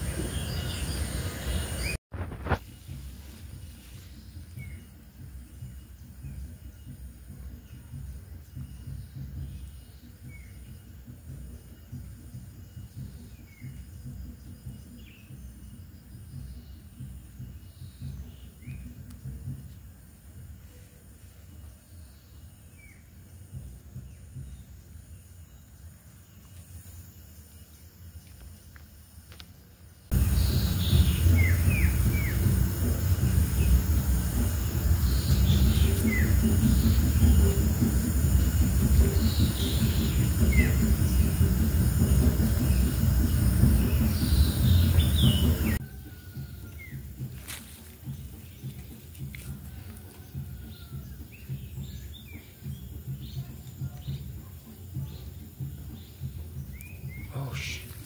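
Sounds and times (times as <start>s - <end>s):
insect chirping: 0.0s - 58.0s
low microphone rumble: 30.1s - 45.8s.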